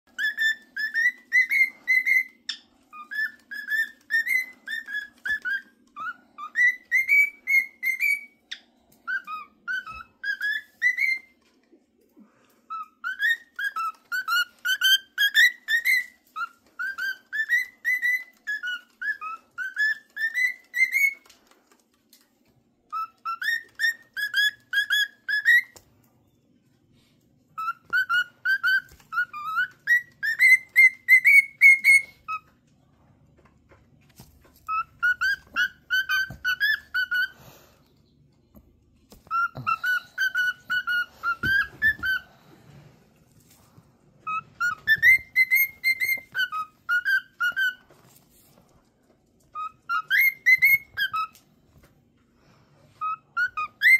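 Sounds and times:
cockatiel whistling: 0.1s - 11.4s, 12.7s - 21.4s, 22.9s - 25.8s, 27.6s - 32.6s, 34.6s - 37.7s, 39.2s - 42.3s, 44.2s - 48.1s, 49.5s - 51.5s, 52.9s - 53.9s.

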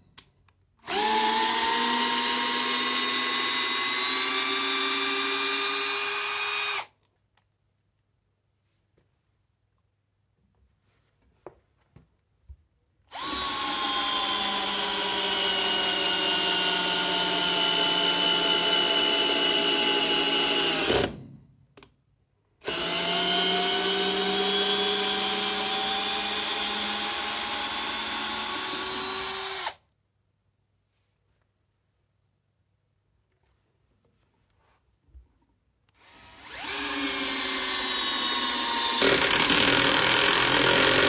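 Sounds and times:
cordless drill driving a screw: 0.8s - 6.9s, 13.1s - 21.2s, 22.6s - 29.8s, 36.0s - 41.0s.

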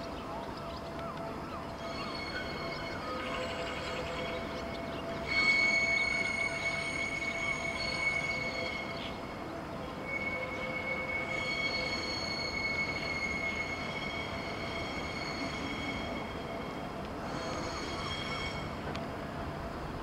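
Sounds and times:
steel wheels squealing on curve: 1.8s - 18.8s.

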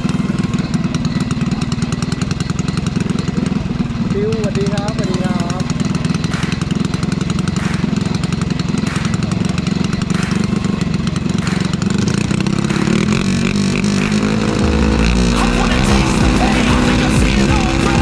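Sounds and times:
engine running steadily: 0.0s - 18.0s
music: 14.6s - 18.0s.

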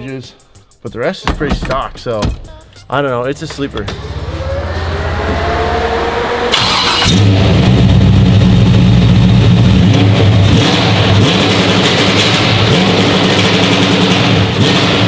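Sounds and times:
engine starting and revving: 3.8s - 15.0s.

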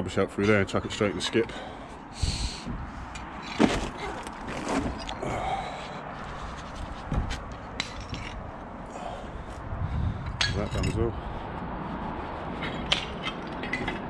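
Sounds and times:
boots stepping on wooden boards: 3.5s - 5.2s.

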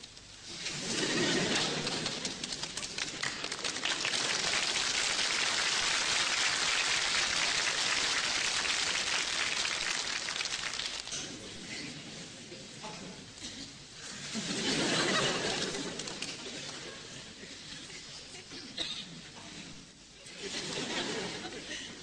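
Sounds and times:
dense crackling hiss: 0.0s - 22.0s.

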